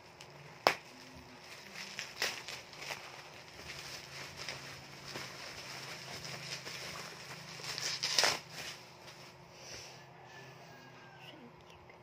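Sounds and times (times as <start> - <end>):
bubble wrap crinkling: 0.0 - 9.4.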